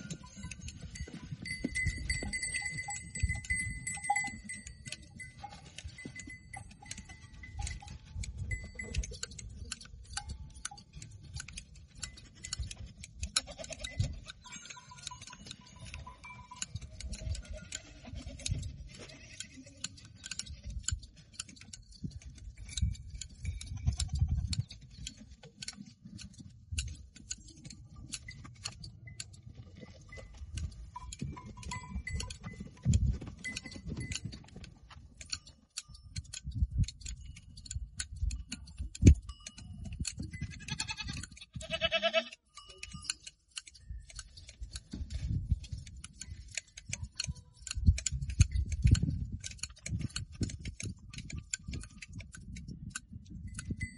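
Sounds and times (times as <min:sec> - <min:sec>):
shears clicking through hair: 0:00.0 - 0:53.9
goats bleating: 0:13.3 - 0:14.0, 0:17.3 - 0:19.9, 0:40.6 - 0:42.4.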